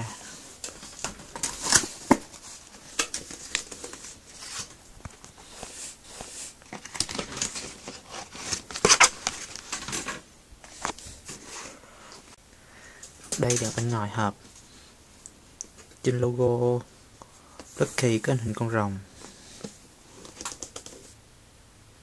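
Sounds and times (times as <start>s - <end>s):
cardboard box rustling: 0.6s - 11.7s.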